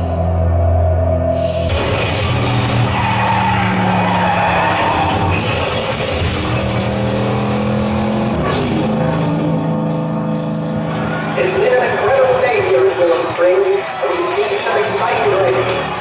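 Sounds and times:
racing car engine: 0.0 - 16.0
tyre squeal: 1.4 - 7.4.

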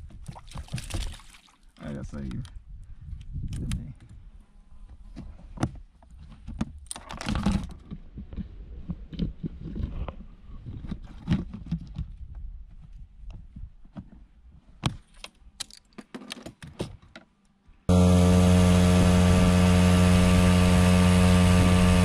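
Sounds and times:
gear clattering on plastic kayak: 5.0 - 17.4.

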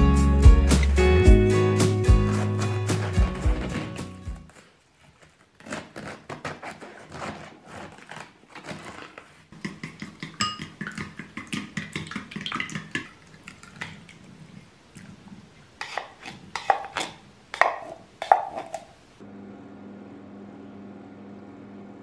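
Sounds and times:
chopsticks beating eggs in bowl: 2.1 - 4.1, 8.9 - 14.2, 15.8 - 18.9.

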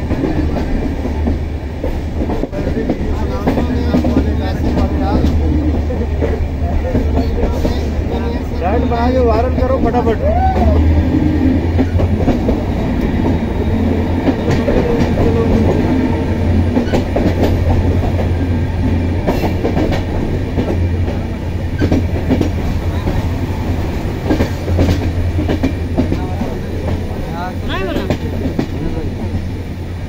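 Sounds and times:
train low rumble: 0.0 - 30.0
wheels clacking over rail joints: 11.4 - 29.6.

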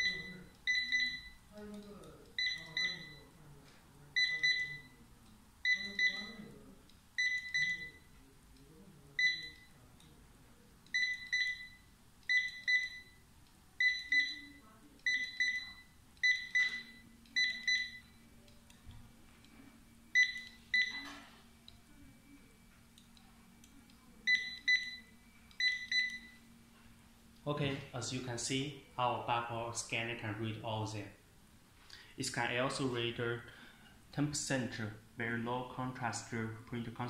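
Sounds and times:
barcode scanner double beeps: 0.0 - 1.4, 2.4 - 3.2, 4.2 - 5.0, 5.6 - 6.5, 7.2 - 8.1, 9.2 - 9.7, 10.9 - 13.2, 13.8 - 18.2, 20.1 - 21.2, 24.3 - 26.4.

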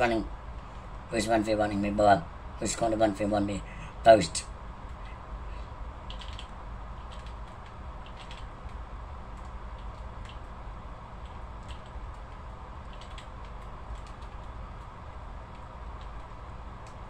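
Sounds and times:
steady low hum: 0.0 - 17.0
light clicks and taps: 11.2 - 17.0.

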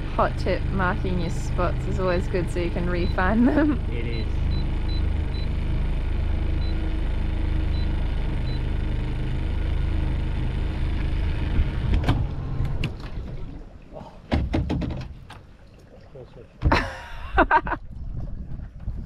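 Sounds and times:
outboard motor idling: 0.0 - 19.0
knocks against metal dinghy: 14.3 - 15.5.

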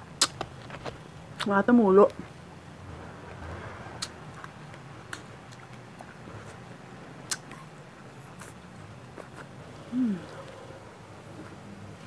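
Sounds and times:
faint low hum: 0.0 - 12.0
mouth smacks and clicks: 0.2 - 0.5, 4.0 - 6.6, 7.2 - 7.7.

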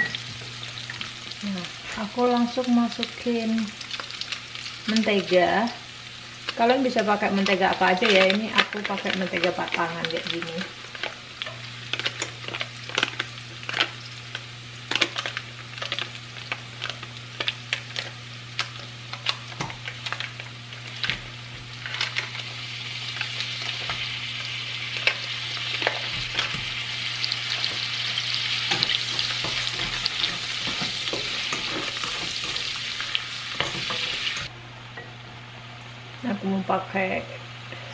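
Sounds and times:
garlic sizzling in oil: 0.0 - 34.5
spatula scraping pan: 19.1 - 34.5.

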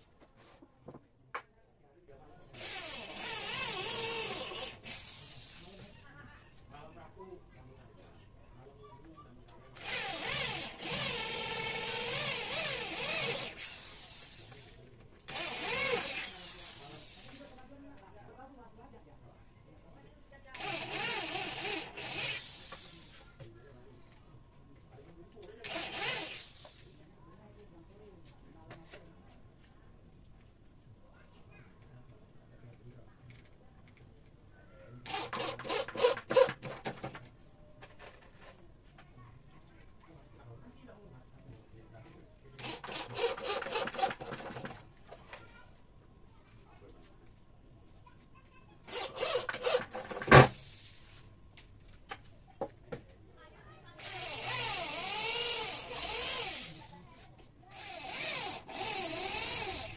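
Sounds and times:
cordless drill boring into wood: 2.5 - 5.8, 9.8 - 17.4, 20.5 - 23.1, 25.6 - 26.8, 35.0 - 37.0, 42.6 - 44.8, 48.9 - 50.5, 54.0 - 57.0, 57.7 - 59.9.

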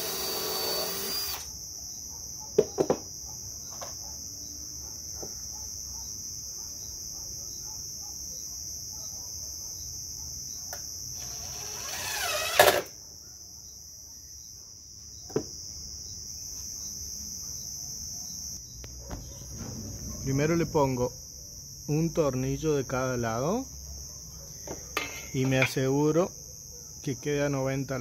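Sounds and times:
cordless drill running: 0.0 - 1.5, 11.2 - 12.9
insect chirring: 0.0 - 28.0.

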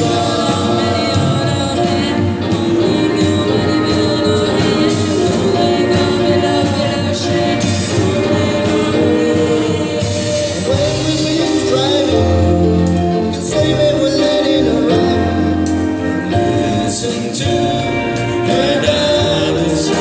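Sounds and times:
electric guitar: 0.0 - 20.0
keyboards: 0.0 - 20.0
person singing: 0.0 - 20.0.

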